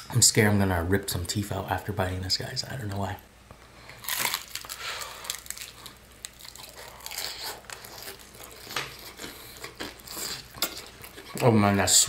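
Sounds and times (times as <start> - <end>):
crunching candy-coated chicken: 4.0 - 12.0.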